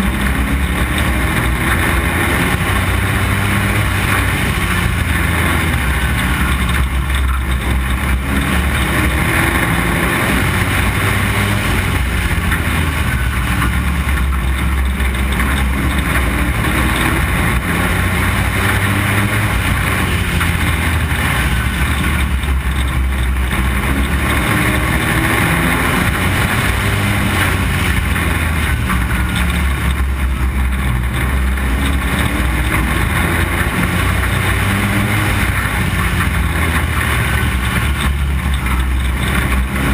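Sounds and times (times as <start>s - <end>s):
race car engine running hard: 0.0s - 39.9s.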